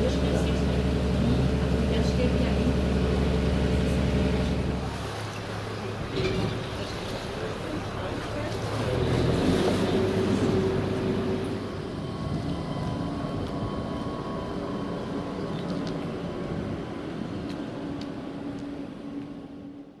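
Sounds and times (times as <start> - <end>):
electric train humming: 0.0 - 20.0
ferry engine running: 0.0 - 20.0.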